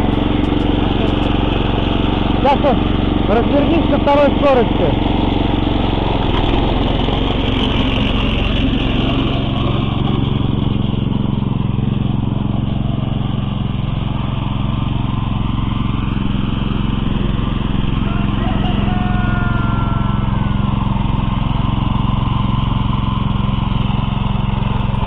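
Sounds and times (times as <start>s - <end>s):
tractor engine droning: 0.0s - 25.0s.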